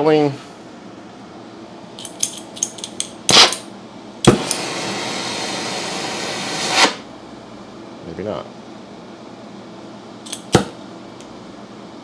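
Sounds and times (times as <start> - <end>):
torch igniter clicks: 2.0 - 4.8, 10.2 - 11.3
torch flame hissing: 3.3 - 3.6, 4.2 - 7.1
torch igniting pop: 3.3 - 3.6, 4.2 - 7.1, 10.4 - 10.8.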